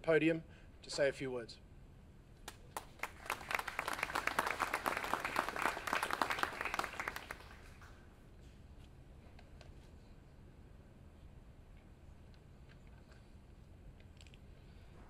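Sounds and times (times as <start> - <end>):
audience applauding: 2.7 - 8.0.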